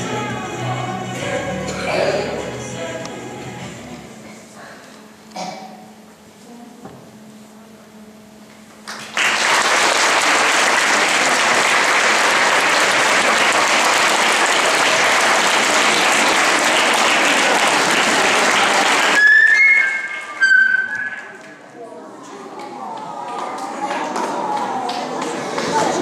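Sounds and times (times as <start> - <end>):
audience applauding: 8.8 - 21.6, 22.6 - 26.0.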